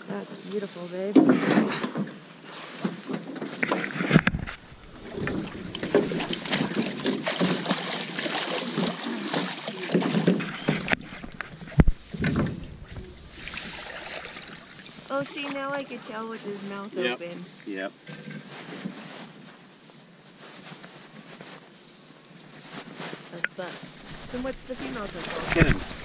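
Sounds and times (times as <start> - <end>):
water splashing against boat: 0.5 - 16.9, 23.1 - 26.0
knocks against boat: 9.9 - 13.5.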